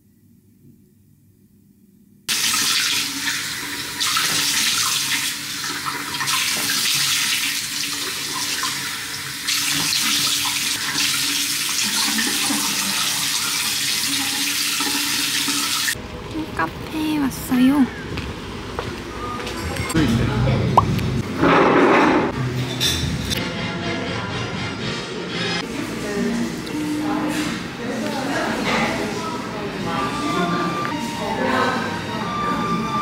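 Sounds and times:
sink tap running: 0:02.3 - 0:16.0.

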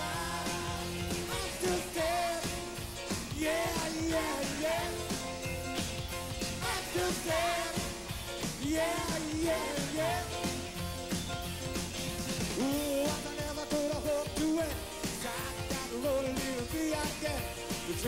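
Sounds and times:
people singing: 0:00.0 - 0:05.6, 0:06.4 - 0:10.9
live pop rock band: 0:00.0 - 0:18.0
steady drum beat: 0:00.0 - 0:18.0.

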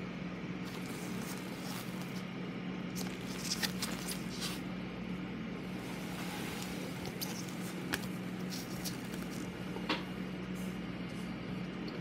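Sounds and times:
steady low hum: 0:00.0 - 0:12.0
soft ticks and rustles of card: 0:07.0 - 0:09.5.

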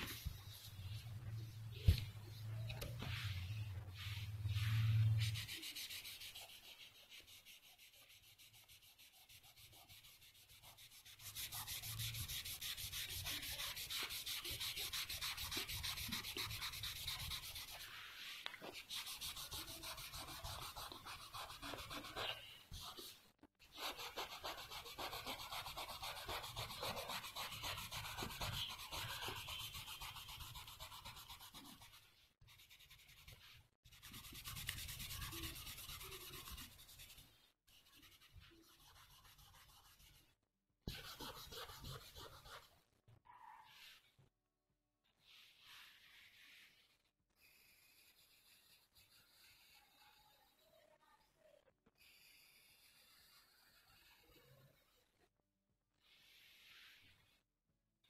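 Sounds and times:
pencil scratching on paper: 0:02.9 - 0:42.8, 0:45.4 - 0:51.0, 0:52.0 - 0:55.1.

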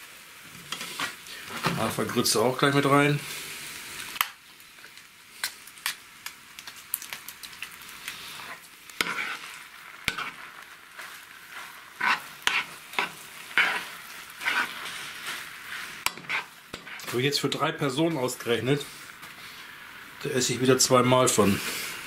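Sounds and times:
food sizzling in a pan: 0:00.0 - 0:22.0
spoon scraping frying pan: 0:00.6 - 0:01.8, 0:08.3 - 0:17.7.

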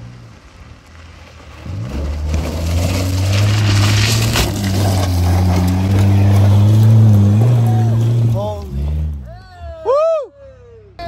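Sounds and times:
vehicle engine revving: 0:01.4 - 0:09.3.

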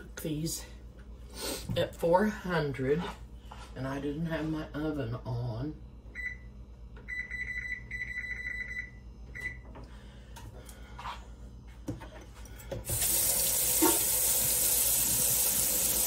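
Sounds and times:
oven control panel beeps: 0:06.2 - 0:09.6
faucet running into sink: 0:12.8 - 0:16.0.

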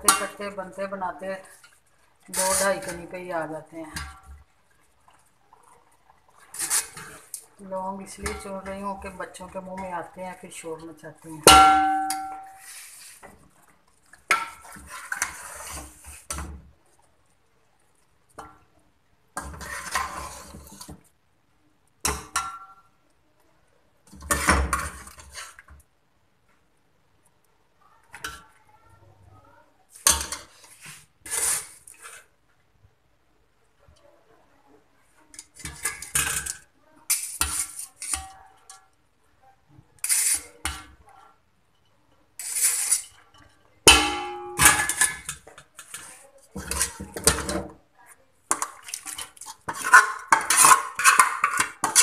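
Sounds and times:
metal spoon scraping steel pot: 0:01.6 - 0:03.1, 0:06.5 - 0:07.4, 0:11.5 - 0:13.3, 0:19.4 - 0:20.9, 0:30.1 - 0:32.2, 0:35.4 - 0:38.8, 0:40.0 - 0:40.9, 0:42.4 - 0:47.6, 0:48.5 - 0:52.0
metal spoon clattering in pot: 0:11.5 - 0:12.6, 0:42.7 - 0:47.7, 0:48.5 - 0:52.0.

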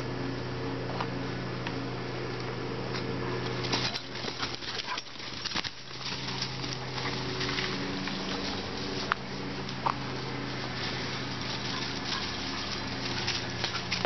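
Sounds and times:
steady low hum: 0:00.0 - 0:14.0
paws crunching through dry leaves: 0:03.5 - 0:14.0.

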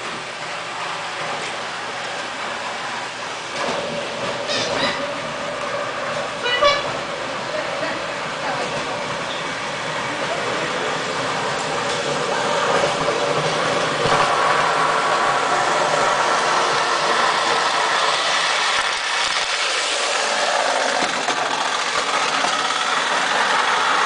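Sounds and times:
toy train whirring rattle: 0:15.4 - 0:24.0.

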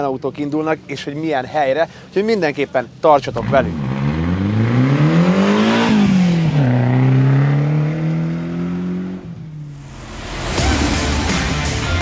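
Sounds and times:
car engine revving: 0:03.2 - 0:12.0.

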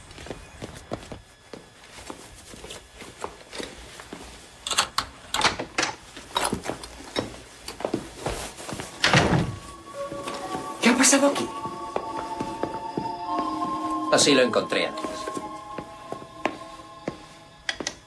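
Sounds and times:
footsteps: 0:06.5 - 0:18.0.

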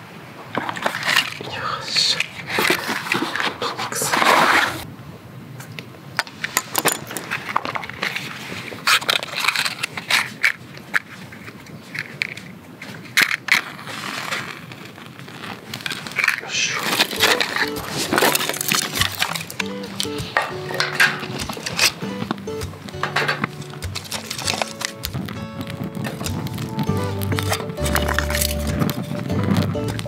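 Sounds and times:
matchboxes rustling: 0:00.6 - 0:04.9, 0:06.2 - 0:30.0
match striking: 0:13.0 - 0:29.0.

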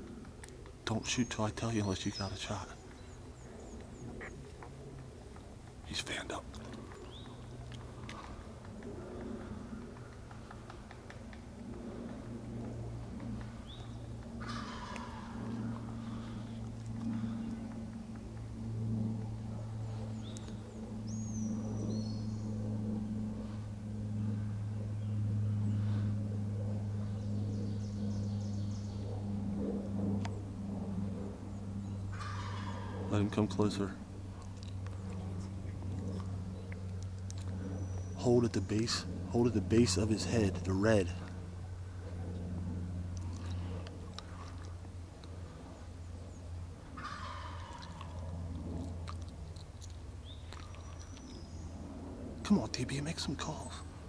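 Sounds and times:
steady low hum: 0:00.0 - 0:54.0
faint songbird trill: 0:00.9 - 0:04.5
turkey gobbling: 0:14.4 - 0:15.4, 0:32.2 - 0:33.1, 0:47.0 - 0:48.1.

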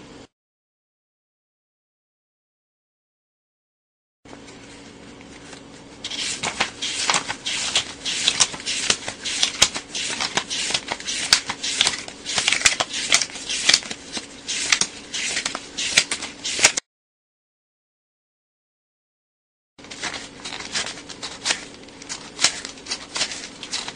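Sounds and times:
faint steady hum: 0:04.3 - 0:16.8, 0:19.8 - 0:23.9.

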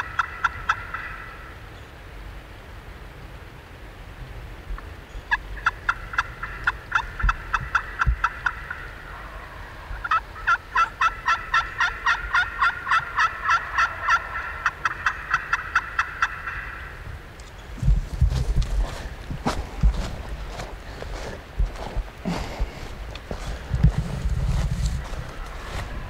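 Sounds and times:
turkey calling: 0:00.0 - 0:01.6, 0:05.3 - 0:17.6.

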